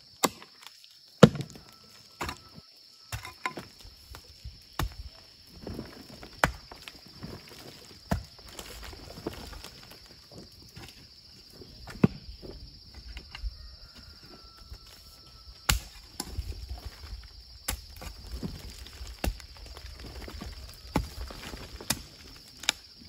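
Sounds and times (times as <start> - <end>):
soil crumbling and scraping: 0.0 - 23.0
hoe chopping into earth: 15.7 - 16.4.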